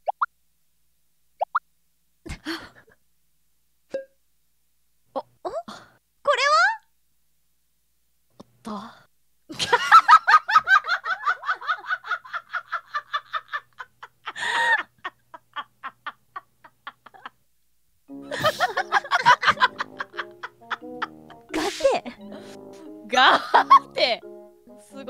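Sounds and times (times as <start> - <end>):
women laughing: 9.5 - 17.4, 18.2 - 22.6, 23.2 - 24.1.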